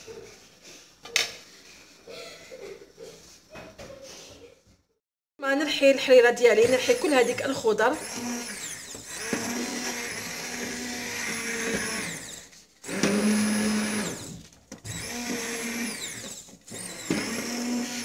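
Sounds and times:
immersion blender whining: 0:06.4 - 0:18.0.

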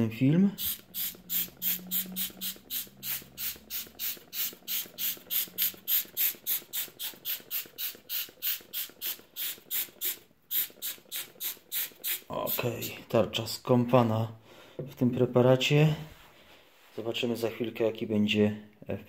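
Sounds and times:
spray bottle hissing: 0:00.6 - 0:13.0.

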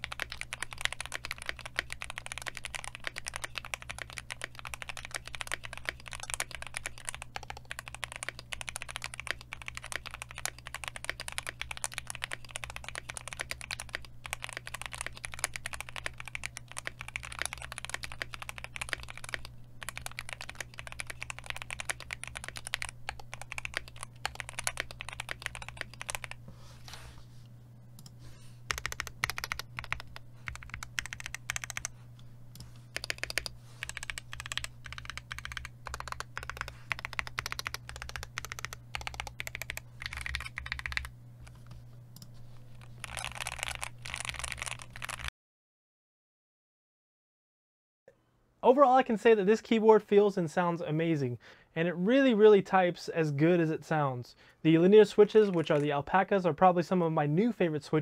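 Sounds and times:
mechanical keyboard typing: 0:00.0 - 0:26.4, 0:28.7 - 0:31.9, 0:32.6 - 0:45.3
steady low hum: 0:00.0 - 0:45.3.

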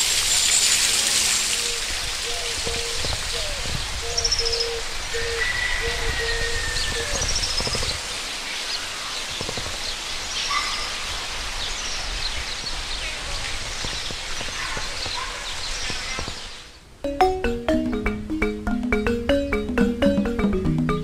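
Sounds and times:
steady outdoor hiss: 0:00.0 - 0:21.0
small birds chirping and whistling: 0:00.3 - 0:16.6.

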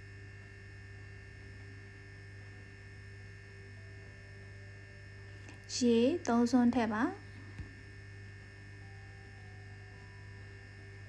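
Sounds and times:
low electrical hum: 0:00.0 - 0:11.0
faint high steady tones: 0:02.4 - 0:11.0.

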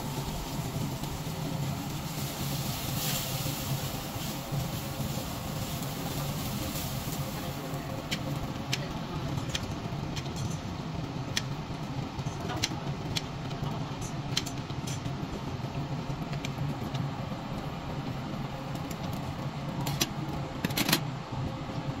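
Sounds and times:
meat sizzling on grill: 0:00.0 - 0:08.7
steady low hum: 0:00.0 - 0:22.0.

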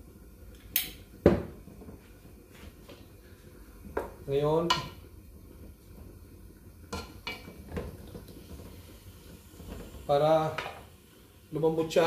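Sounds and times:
wooden spoon knocking in pot: 0:03.9 - 0:05.0, 0:06.9 - 0:08.0.

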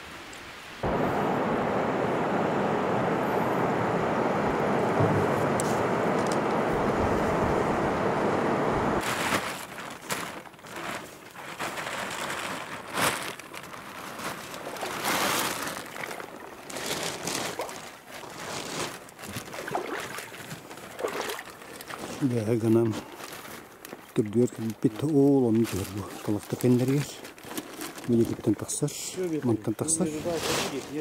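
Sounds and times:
boat rushing on river: 0:00.8 - 0:09.0
bags rustling and crinkling: 0:09.0 - 0:31.0.

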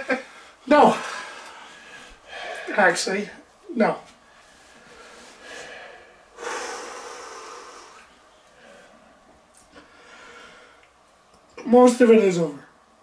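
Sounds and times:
man breathing out hard: 0:05.0 - 0:09.0.

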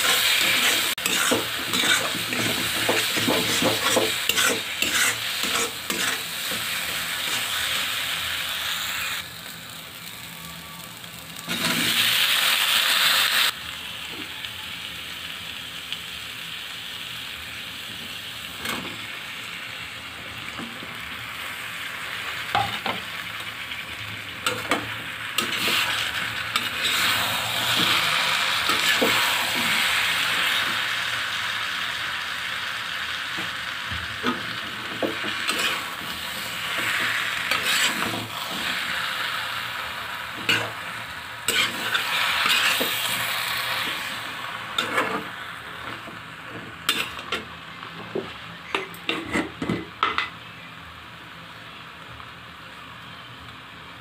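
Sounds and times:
metal spatula scraping a pan: 0:00.0 - 0:07.7, 0:11.5 - 0:12.1, 0:24.4 - 0:30.0, 0:34.2 - 0:39.0, 0:41.5 - 0:44.1, 0:44.7 - 0:47.4, 0:48.7 - 0:49.8
vegetables sizzling in hot oil: 0:00.0 - 0:54.0.

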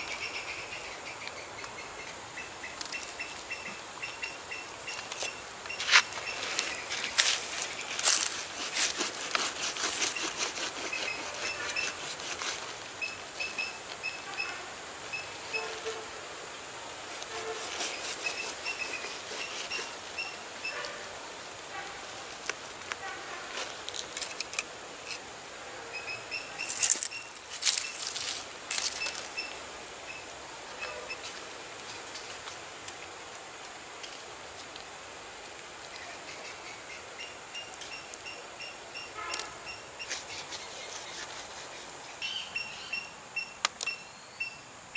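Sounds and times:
knife sawing through fruit: 0:07.9 - 0:13.0, 0:17.1 - 0:20.0, 0:40.1 - 0:42.2.

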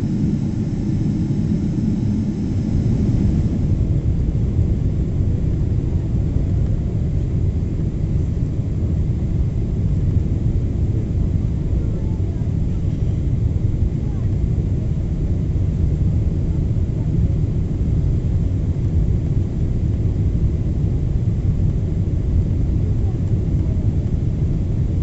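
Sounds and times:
rushing airflow: 0:00.0 - 0:05.8
faint high whine: 0:00.0 - 0:06.6
airliner engines rumbling: 0:00.0 - 0:25.0.

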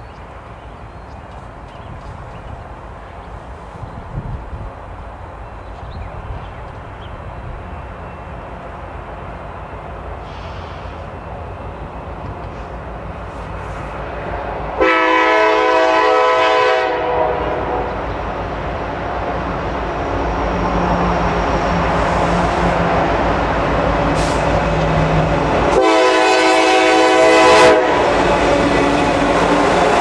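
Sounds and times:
freight train rumbling: 0:00.0 - 0:30.0
locomotive air horn blasts: 0:14.8 - 0:18.0, 0:25.7 - 0:30.0.

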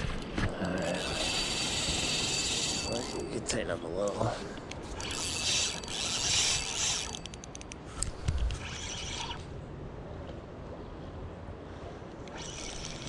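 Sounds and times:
fishing reel whirring and clicking: 0:00.2 - 0:09.4, 0:12.2 - 0:13.0.

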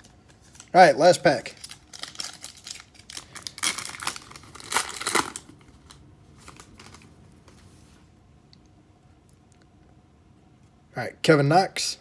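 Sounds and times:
cards rustling and ticking: 0:00.0 - 0:00.8, 0:01.4 - 0:07.6
foil wrapper tearing and crinkling: 0:01.4 - 0:07.1.

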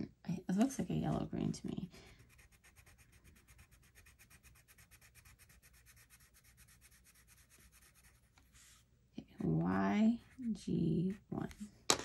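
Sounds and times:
pencil scratching on paper: 0:02.1 - 0:08.8, 0:09.4 - 0:11.7.

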